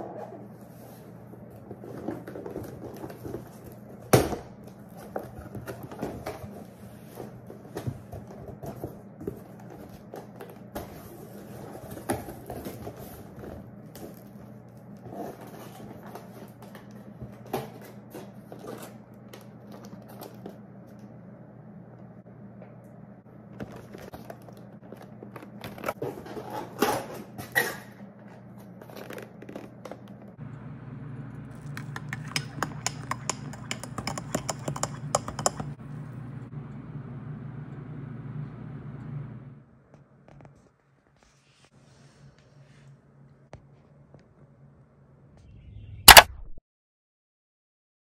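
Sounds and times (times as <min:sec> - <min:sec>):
steady low hum: 0:30.1 - 0:40.6.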